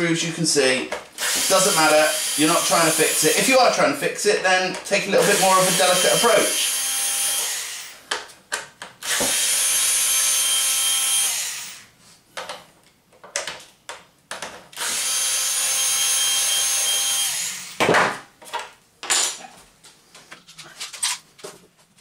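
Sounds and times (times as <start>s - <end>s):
electric screwdriver whine: 1.2s - 3.5s, 5.2s - 7.9s, 9.0s - 11.9s, 14.8s - 17.8s.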